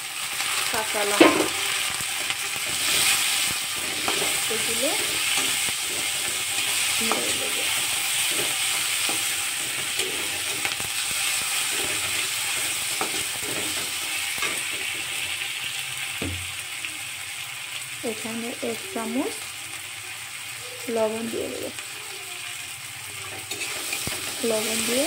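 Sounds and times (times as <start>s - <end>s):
vegetables sizzling in oil: 0.0s - 25.0s
metal spatula scraping pan: 1.1s - 15.4s, 23.2s - 25.0s.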